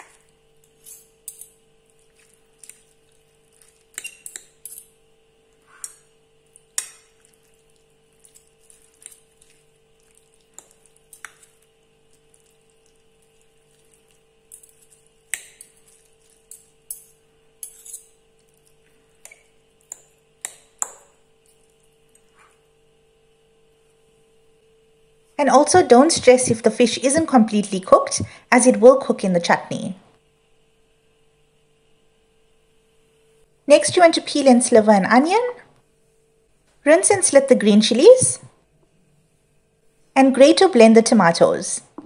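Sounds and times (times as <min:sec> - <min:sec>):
low steady hum: 0:00.0 - 0:42.0
forks scraping ceramic plate: 0:03.8 - 0:04.9.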